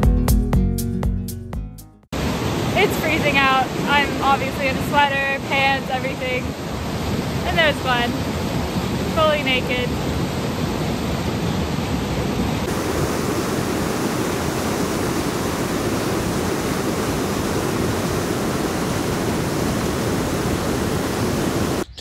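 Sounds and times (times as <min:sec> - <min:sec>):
waterfall rushing over rocks: 0:02.2 - 0:09.0, 0:12.6 - 0:21.8.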